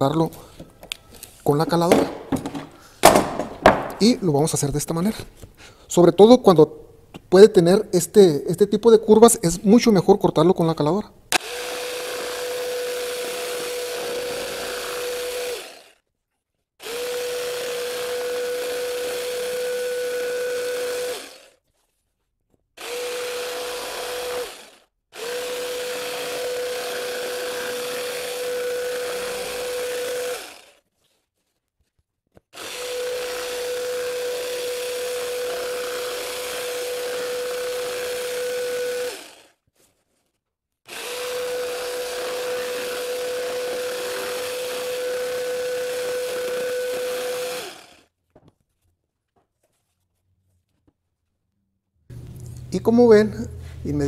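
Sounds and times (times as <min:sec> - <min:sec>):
electric jigsaw cutting cardboard: 0:11.3 - 0:16.0, 0:16.8 - 0:21.6, 0:22.8 - 0:30.8, 0:32.5 - 0:39.6, 0:40.9 - 0:48.1.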